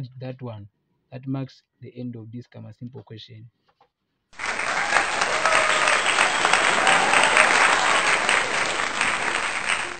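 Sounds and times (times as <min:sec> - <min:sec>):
crowd applauding: 0:04.4 - 0:09.9.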